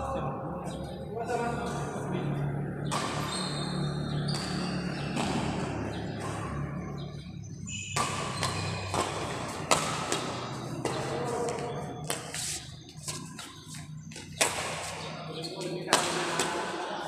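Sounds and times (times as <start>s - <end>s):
shoes squeaking on court floor: 2.7s - 17.0s
racket striking shuttlecock: 2.8s - 3.4s, 4.1s - 6.9s, 7.7s - 12.5s, 14.2s - 15.2s, 15.9s - 16.8s.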